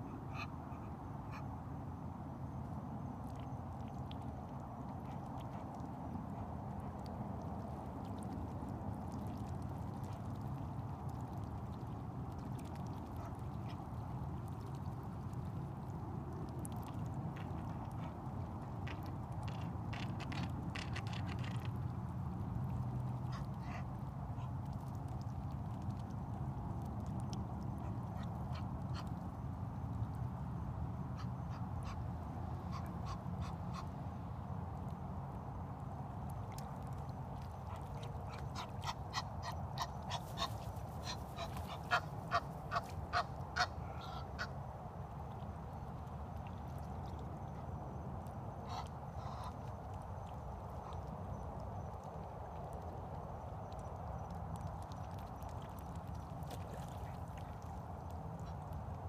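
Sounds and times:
faint duck calls: 0:00.0 - 0:01.5, 0:23.2 - 0:24.6, 0:31.1 - 0:34.0, 0:37.6 - 0:44.6, 0:48.6 - 0:49.7.

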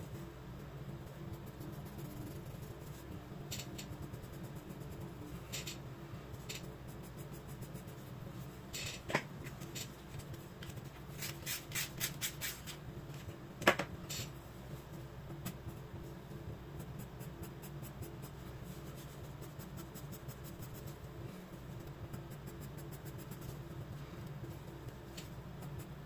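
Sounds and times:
pencil scratching on paper: 0:01.3 - 0:03.1.

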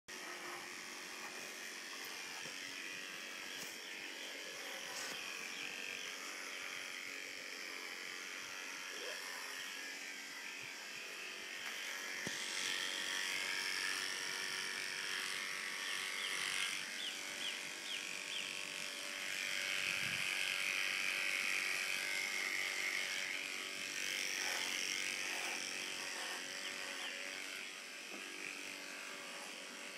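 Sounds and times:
electric clippers buzzing: 0:00.1 - 0:29.9.

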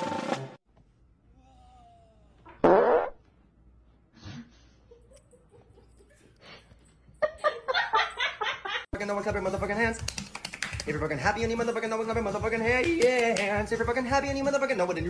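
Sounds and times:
loud fart: 0:02.5 - 0:03.2.

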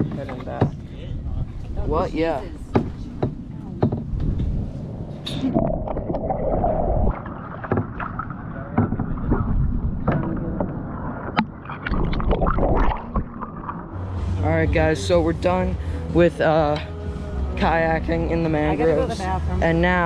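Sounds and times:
microphone handling rumble: 0:00.0 - 0:14.9
paddle splashes and knocks: 0:07.1 - 0:13.9.

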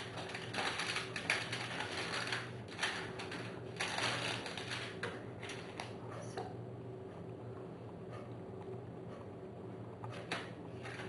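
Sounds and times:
aluminium foil crinkling: 0:00.0 - 0:06.0.

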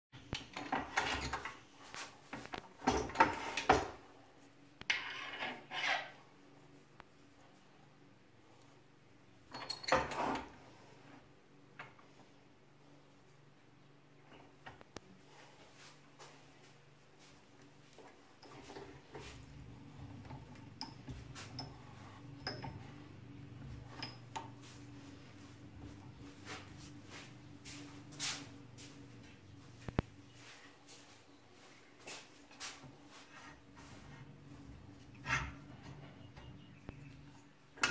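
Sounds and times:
low steady hum: 0:00.2 - 0:37.9
metal lathe parts scraping and knocking: 0:04.8 - 0:06.2, 0:09.5 - 0:10.6, 0:18.0 - 0:26.8, 0:33.4 - 0:37.2.

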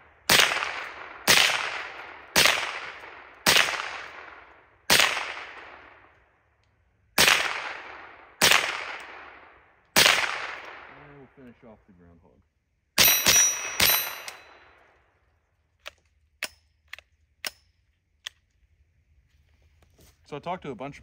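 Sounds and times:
rifle shots with echo: 0:00.0 - 0:06.2, 0:07.2 - 0:11.5, 0:13.0 - 0:14.9.

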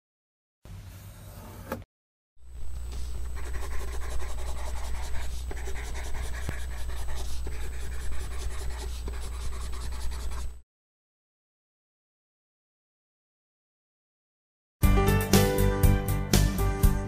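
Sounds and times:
steady low hum: 0:02.4 - 0:10.6
pencil scratching on paper: 0:03.2 - 0:10.6.

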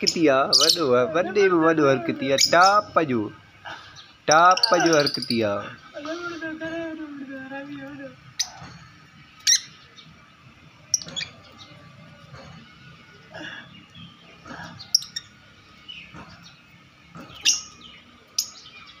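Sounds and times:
soft bird calls: 0:00.0 - 0:06.6, 0:07.4 - 0:19.0
lovebird chirping and shrieking: 0:09.4 - 0:09.9, 0:10.9 - 0:11.8, 0:14.0 - 0:15.4, 0:17.2 - 0:18.9.

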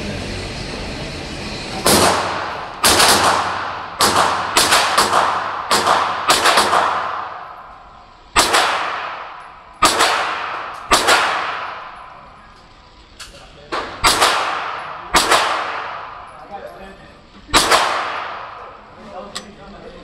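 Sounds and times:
pistol shots echoing indoors: 0:01.8 - 0:12.5, 0:13.7 - 0:16.4, 0:17.5 - 0:18.9.

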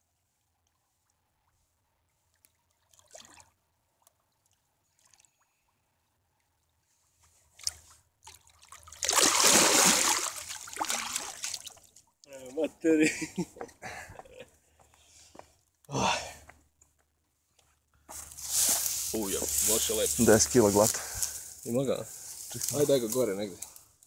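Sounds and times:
faint water sounds: 0:00.0 - 0:16.5, 0:18.1 - 0:23.8
fish splashing: 0:07.6 - 0:12.0.

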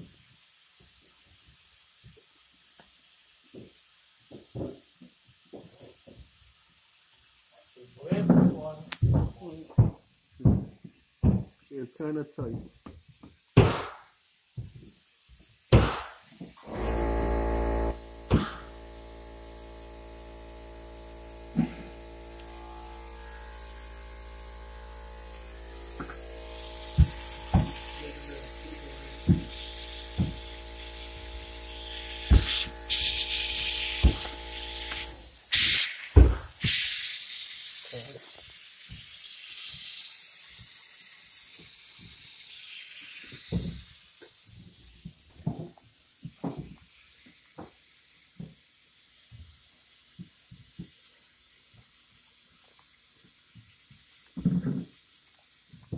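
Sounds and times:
sharp hissing: 0:15.2 - 0:44.8
refrigerator compressor humming: 0:16.7 - 0:35.3.

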